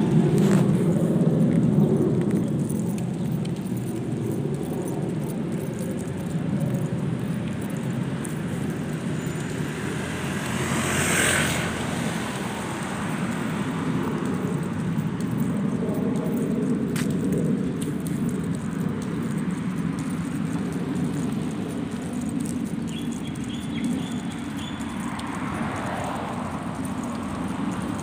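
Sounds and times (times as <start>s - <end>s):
low traffic rumble: 0.0s - 28.0s
cars driving past: 7.0s - 15.1s, 23.9s - 28.0s.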